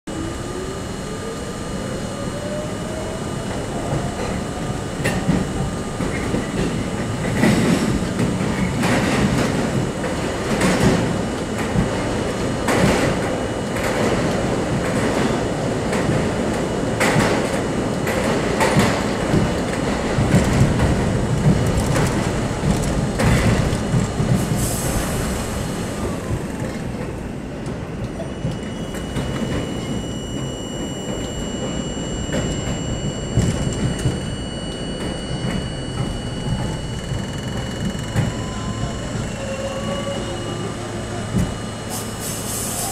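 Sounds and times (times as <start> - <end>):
train motor whine: 0.1 - 42.9
wheel-on-rail rumble: 3.3 - 29.9.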